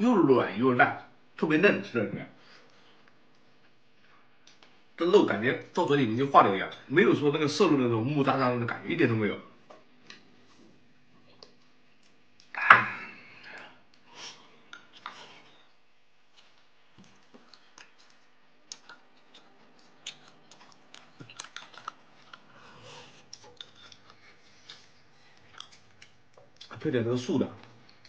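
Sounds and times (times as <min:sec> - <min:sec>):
light chewing: 0:10.0 - 0:26.9, 0:27.6 - 0:28.0
chopsticks clicking against bowls: 0:16.4 - 0:22.4, 0:23.2 - 0:26.8.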